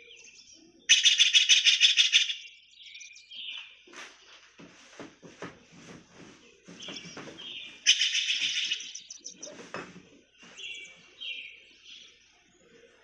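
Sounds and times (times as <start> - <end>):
bird trill: 0.0 - 3.8, 6.7 - 9.8, 10.4 - 13.0
birds chirping: 0.0 - 13.0.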